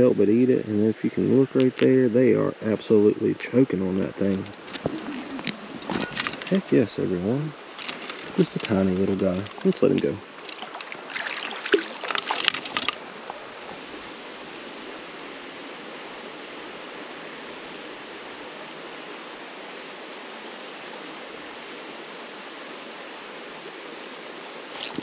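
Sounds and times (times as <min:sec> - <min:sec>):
flowing creek water: 0:00.8 - 0:25.0
fish splashing into water: 0:10.4 - 0:13.0.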